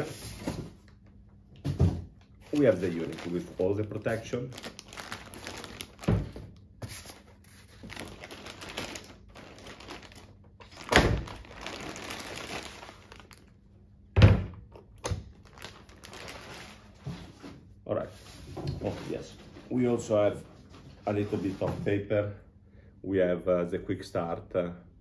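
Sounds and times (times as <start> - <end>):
plastic bag crinkling: 2.4 - 13.6, 15.2 - 17.1.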